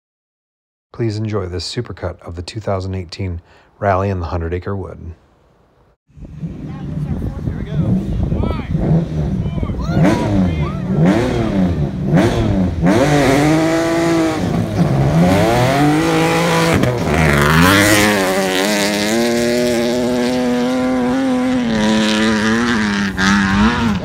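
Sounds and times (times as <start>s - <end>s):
rally car engine revving: 6.2s - 24.0s
car accelerating hard past: 10.0s - 24.0s.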